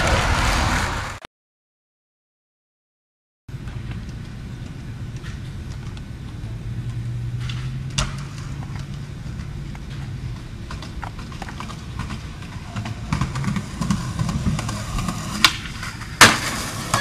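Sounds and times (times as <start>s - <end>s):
skateboard wheels rolling on concrete: 0.0s - 1.3s, 3.5s - 17.0s
skateboard deck clacking: 7.4s - 17.0s.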